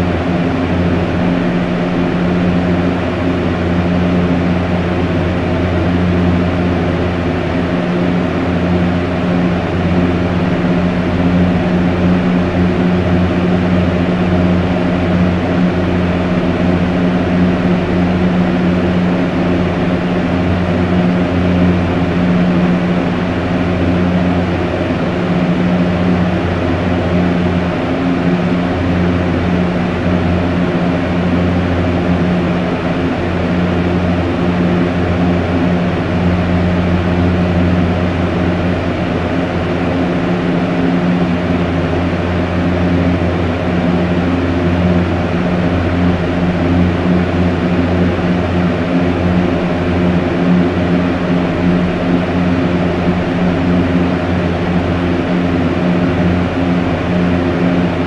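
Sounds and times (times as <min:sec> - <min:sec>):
fan rushing air: 0:00.0 - 0:58.0
low hum: 0:00.0 - 0:58.0.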